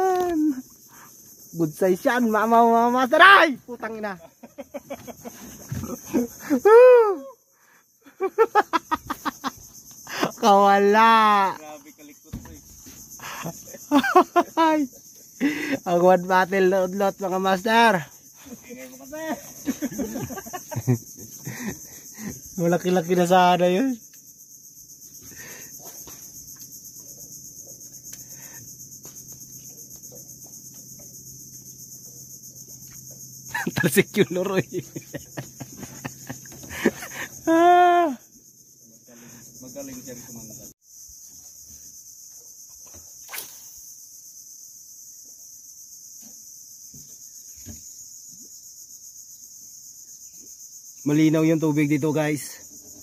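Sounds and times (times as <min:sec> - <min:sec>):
insects buzzing: 0:00.0 - 0:53.0
sharp click: 0:43.3 - 0:43.7.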